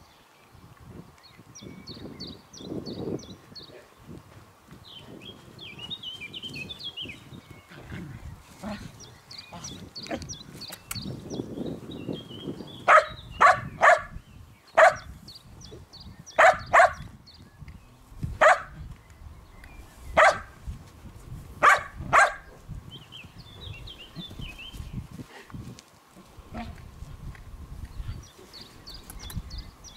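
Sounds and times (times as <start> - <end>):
dog barking: 12.9 - 14.1, 14.8 - 15.1, 16.4 - 17.0, 18.4 - 18.8, 20.2 - 20.5, 21.6 - 22.5.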